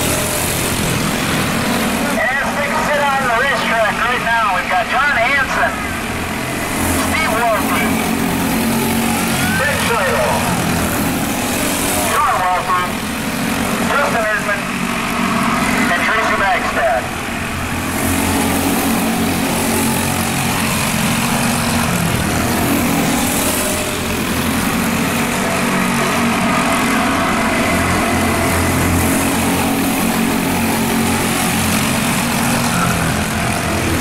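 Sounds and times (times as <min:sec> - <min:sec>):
go-kart engines racing: 0:00.0 - 0:34.0.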